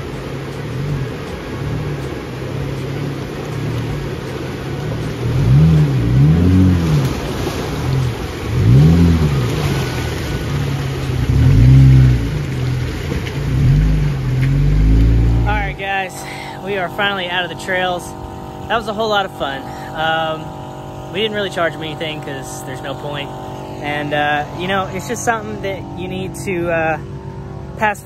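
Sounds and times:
water splashing around tyres: 0.0s - 15.8s
car engine revving: 0.0s - 28.0s.

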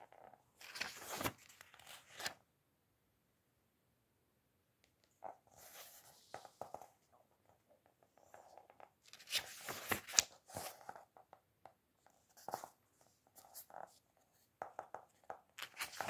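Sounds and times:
book pages turning: 0.6s - 2.4s, 5.5s - 6.9s, 8.2s - 11.1s, 15.5s - 16.0s.

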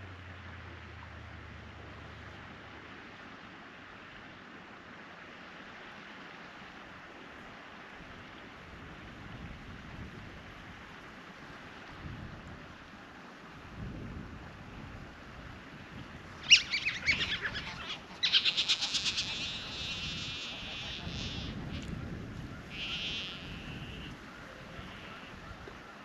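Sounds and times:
otters calling: 16.4s - 26.0s
pulsed otter calls: 16.4s - 26.0s.

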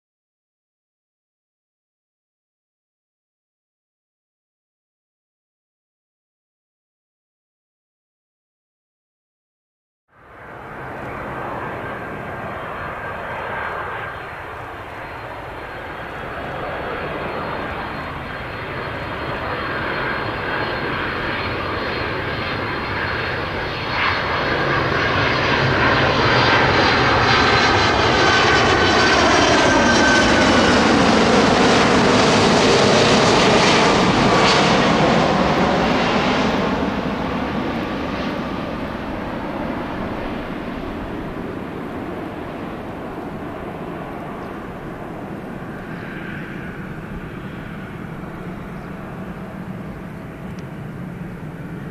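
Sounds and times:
jet airliner flying overhead: 10.1s - 51.9s.

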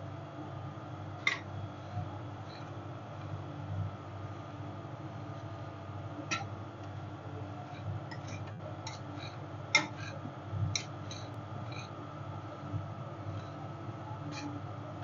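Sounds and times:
metal spatulas tapping cold plate: 8.1s - 10.2s, 10.8s - 11.3s.

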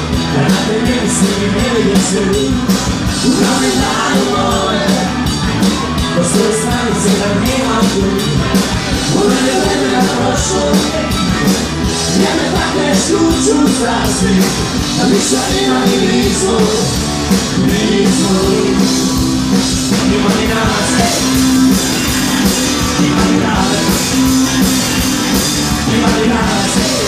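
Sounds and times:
drum kit: 0.0s - 27.0s
electric guitars: 0.0s - 27.0s
live rock band playing: 0.0s - 27.0s
person singing: 0.3s - 11.3s, 12.0s - 19.2s, 19.9s - 21.5s, 25.8s - 27.0s.

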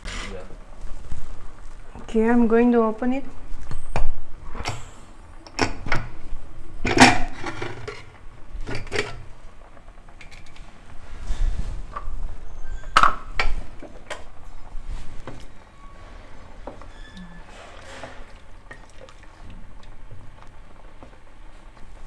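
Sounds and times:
stirring in broth: 17.6s - 20.4s.

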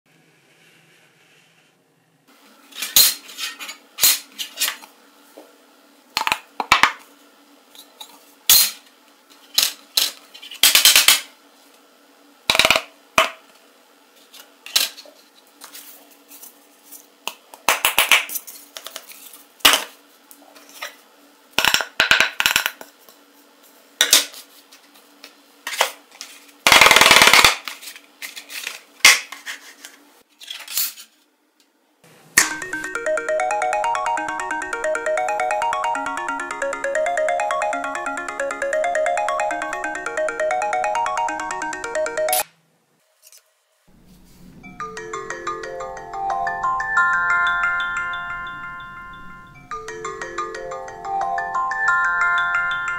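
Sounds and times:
objects sliding on a table: 0.3s - 1.8s, 43.9s - 44.6s.

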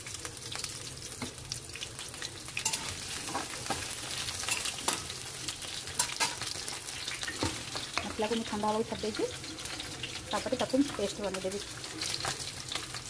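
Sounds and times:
potatoes sizzling in hot oil: 0.0s - 13.0s
metal spatula scraping pan: 2.6s - 5.1s.

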